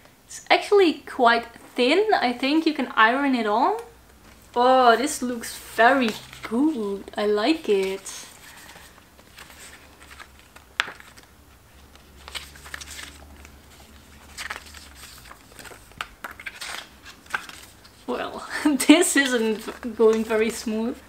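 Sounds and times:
paper pages rustling: 5.9 - 21.0.

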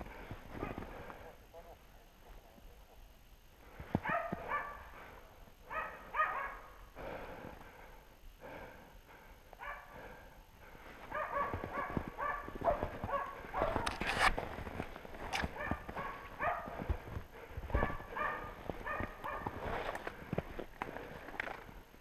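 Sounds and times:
dogs barking: 4.0 - 6.8, 9.6 - 10.2, 11.0 - 14.1, 15.4 - 19.8
footsteps crunching in snow: 10.8 - 21.8.

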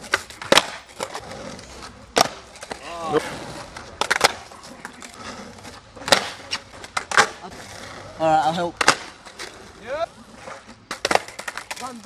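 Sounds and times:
skateboard tail pops and clacks: 0.0 - 2.8, 3.7 - 5.2, 6.0 - 7.4, 8.6 - 9.6, 10.4 - 12.0.

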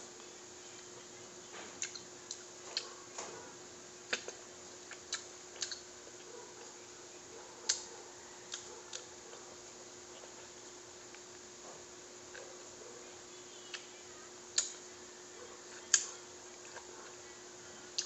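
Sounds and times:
faint steady hum: 0.0 - 18.0
fruit rind peeling clicks: 4.9 - 5.8, 14.5 - 14.8.

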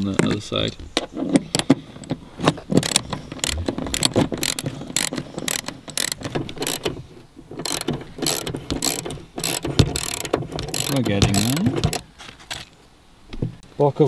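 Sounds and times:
ratchet wrench clicking: 2.8 - 6.9, 7.6 - 12.0.

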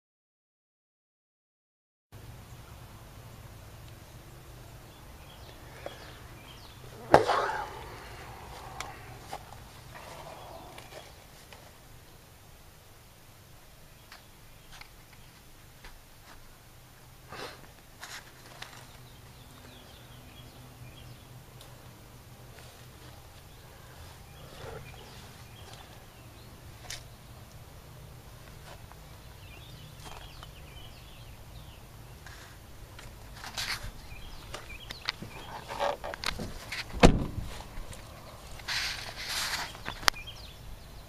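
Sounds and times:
steady low hum: 2.2 - 13.9
handling clicks and rustles: 32.2 - 40.3.

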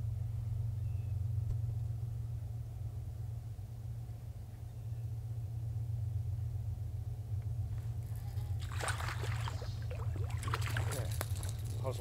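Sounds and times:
low steady rumble: 0.0 - 12.0
fish splashing and dripping: 8.5 - 11.7.

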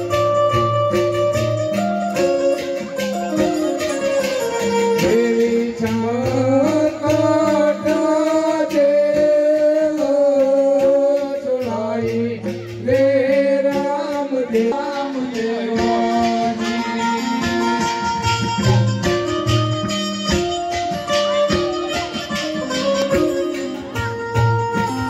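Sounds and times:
held instrumental notes: 0.0 - 25.0
person singing: 4.9 - 18.0.

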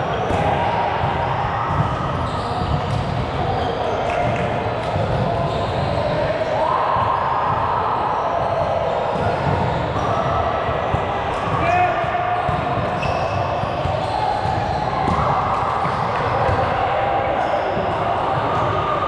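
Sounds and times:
ball bouncing and being struck: 2.6 - 3.4, 12.4 - 16.7.

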